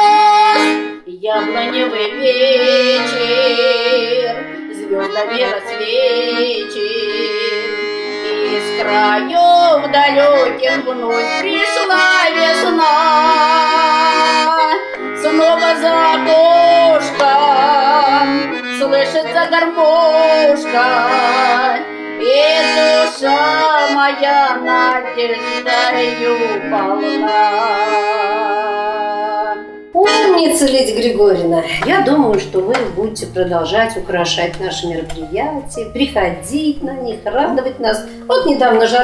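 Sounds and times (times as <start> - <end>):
accordion: 0.0 - 39.0
woman singing with vibrato: 0.0 - 39.0.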